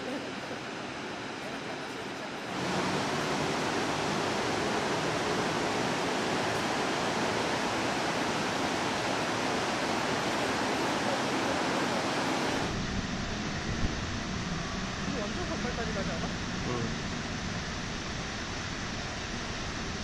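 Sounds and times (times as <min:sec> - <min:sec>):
waterfall rushing: 0:02.5 - 0:12.7.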